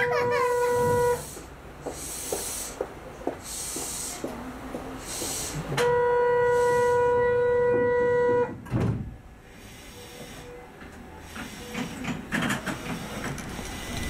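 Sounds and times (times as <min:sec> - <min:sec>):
departure buzzer tone: 0:00.0 - 0:01.3, 0:05.8 - 0:08.6, 0:13.2 - 0:14.0
train doors closing thud: 0:07.6 - 0:09.2, 0:11.4 - 0:14.0.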